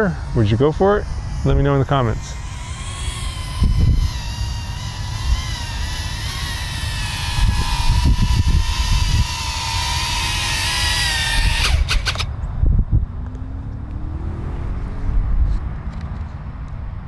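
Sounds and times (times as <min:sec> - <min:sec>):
drone motors whining: 0:00.0 - 0:12.4
wind rumbling on microphone: 0:00.0 - 0:17.0.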